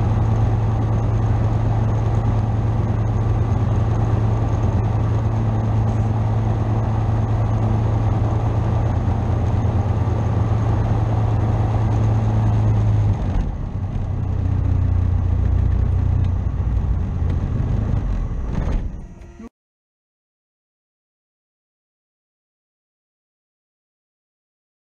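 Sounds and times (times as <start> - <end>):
aircraft engine idling: 0.0 - 19.5.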